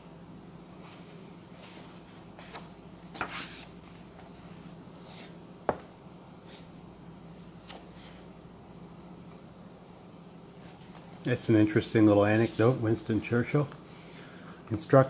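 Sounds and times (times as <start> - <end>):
book pages rustling and turning: 0.8 - 5.4, 10.6 - 11.2.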